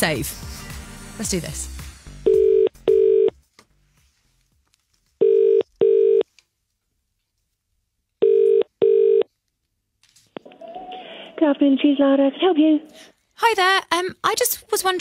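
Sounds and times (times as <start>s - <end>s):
telephone ringback tone: 2.3s - 3.3s, 5.2s - 6.2s, 8.2s - 9.2s.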